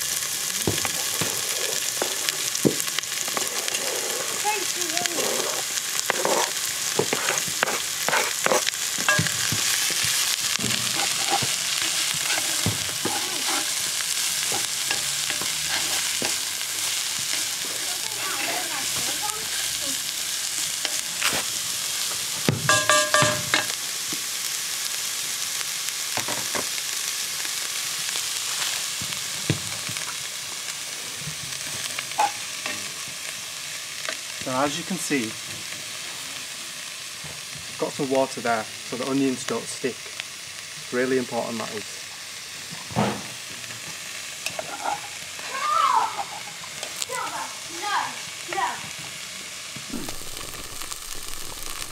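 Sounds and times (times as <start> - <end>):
onions sizzling in a pot: 0.0 - 51.9
wooden spoon scraping a pot: 0.8 - 19.8.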